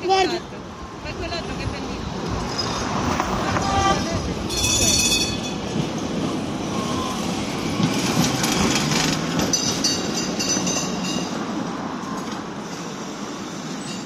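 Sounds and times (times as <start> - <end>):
tram wheels rumbling on rails: 0.0 - 14.0.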